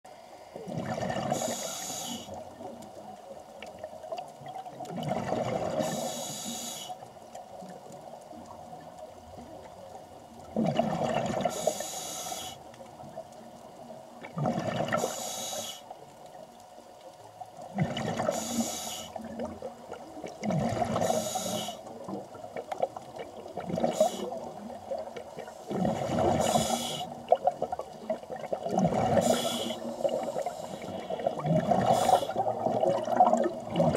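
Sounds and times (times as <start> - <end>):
underwater hiss: 0.1 - 2.7, 5.3 - 7.1, 11.2 - 13.1, 14.7 - 16.0, 17.9 - 19.6, 20.4 - 22.2, 23.6 - 27.4, 28.7 - 33.9
regulator exhaled bubbles: 28.4 - 33.9.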